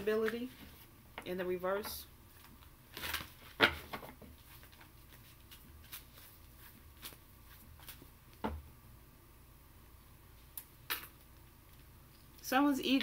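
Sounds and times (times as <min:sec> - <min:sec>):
cards rustling and ticking: 0:02.3 - 0:08.4.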